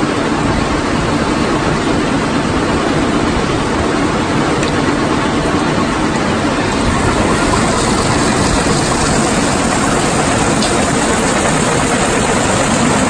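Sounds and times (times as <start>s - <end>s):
belt conveyor carrying stone: 2.2s - 13.0s
rock crusher running: 6.6s - 13.0s.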